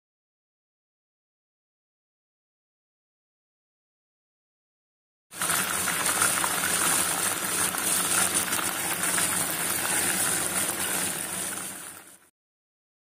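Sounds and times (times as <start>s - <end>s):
hot oil sizzling: 5.3s - 12.3s.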